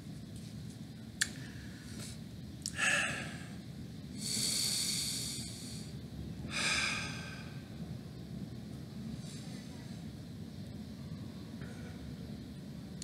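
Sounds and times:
man breathing through nose: 0:01.4 - 0:07.7.

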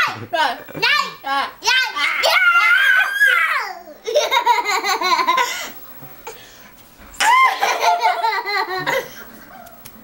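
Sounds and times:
woman laughing: 0:07.3 - 0:09.7
toddler laughing: 0:07.5 - 0:09.1.

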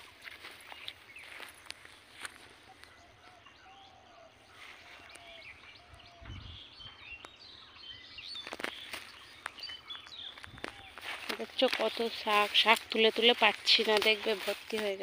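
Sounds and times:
small birds chirping: 0:00.0 - 0:15.0
leafy greens snapping and rustling: 0:08.3 - 0:15.0.

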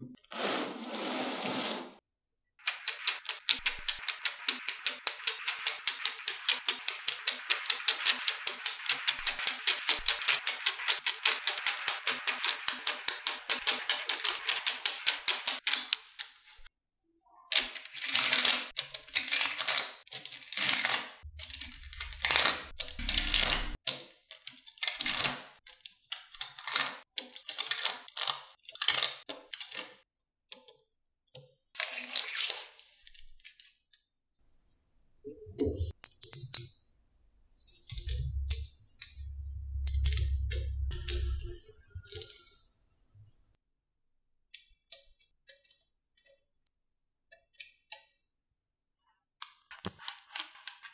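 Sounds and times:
magnetic balls clicking and clattering: 0:02.6 - 0:16.0, 0:35.6 - 0:39.2, 0:39.8 - 0:42.5.

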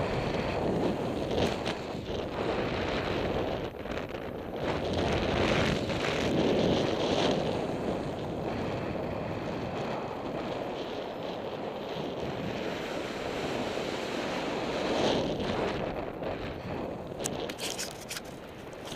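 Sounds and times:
wind rushing over microphone: 0:00.0 - 0:18.9.

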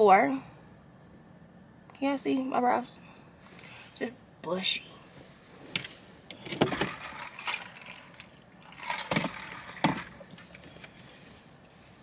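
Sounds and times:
small objects rustling and clacking: 0:05.8 - 0:11.3.

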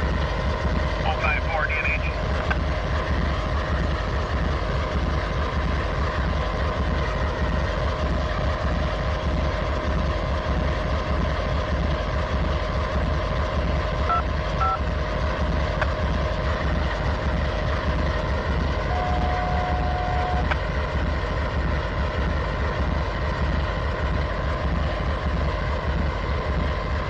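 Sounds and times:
diesel locomotive idling: 0:00.0 - 0:27.0
steady whine: 0:00.0 - 0:27.0
short high beeps: 0:14.1 - 0:14.8, 0:18.9 - 0:20.5.

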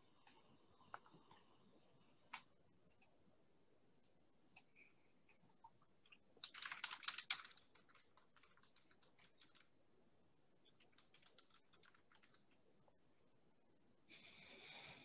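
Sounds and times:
typing on computer keyboard: 0:05.3 - 0:09.7, 0:10.6 - 0:12.7.

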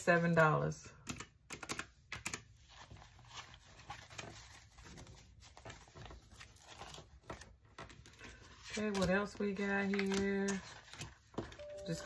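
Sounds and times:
paper banknotes rustling: 0:02.4 - 0:12.0.

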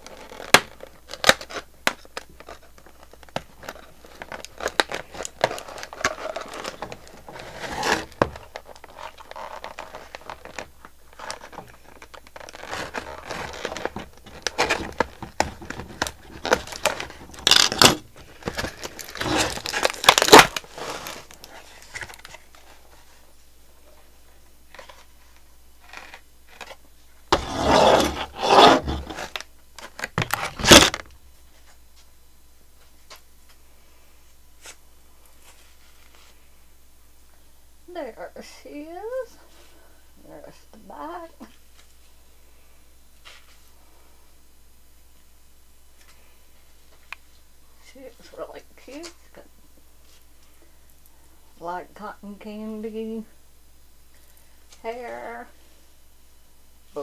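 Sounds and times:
plastic packaging scraping and crinkling: 0:00.0 - 0:23.2, 0:25.8 - 0:31.1.

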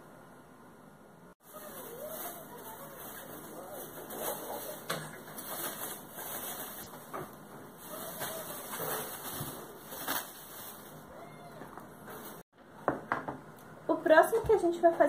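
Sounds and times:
plastic bag crinkling: 0:01.4 - 0:07.1, 0:07.8 - 0:11.3.

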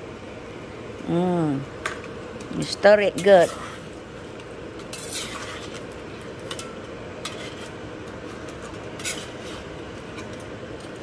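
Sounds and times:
metal spatula scraping a wok: 0:03.2 - 0:04.0, 0:04.8 - 0:10.4.

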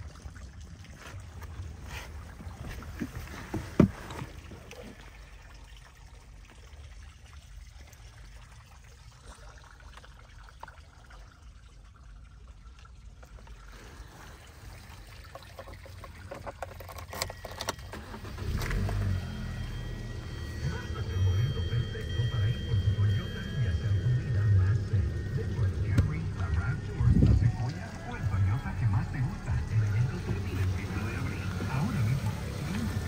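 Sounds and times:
phone handling rumble and rustling: 0:01.0 - 0:04.7, 0:15.2 - 0:20.6, 0:25.0 - 0:27.8.

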